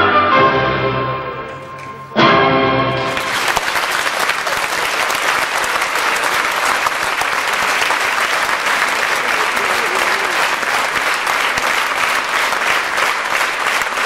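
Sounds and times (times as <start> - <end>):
audience applauding: 3.0 - 14.0.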